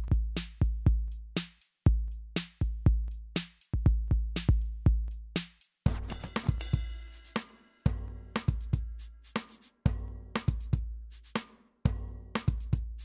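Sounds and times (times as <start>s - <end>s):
electronic drum-machine beat with bass: 0.0s - 13.0s.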